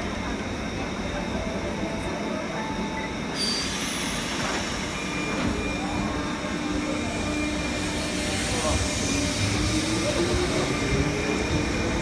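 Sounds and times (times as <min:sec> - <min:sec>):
train rumble: 0:00.0 - 0:12.0
train wheels squealing: 0:02.8 - 0:12.0.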